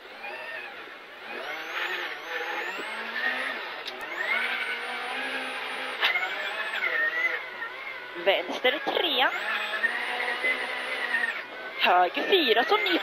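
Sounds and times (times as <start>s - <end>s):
rally car engine revving: 0.0s - 13.0s.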